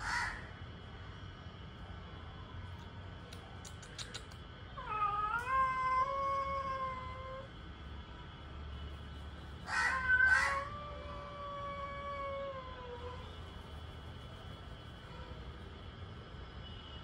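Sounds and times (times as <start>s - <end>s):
cats caterwauling: 4.7s - 7.6s, 9.6s - 13.4s.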